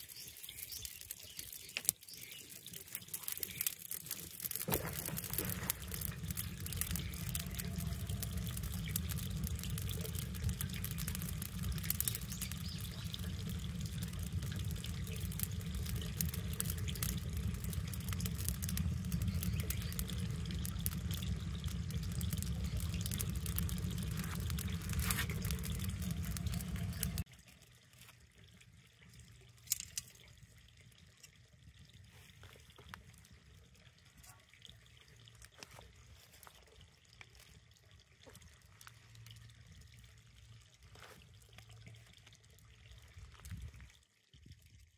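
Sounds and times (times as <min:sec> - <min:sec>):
wood fire crackling and popping: 0:00.0 - 0:27.3, 0:29.6 - 0:30.3
low fire rumble: 0:00.3 - 0:44.9.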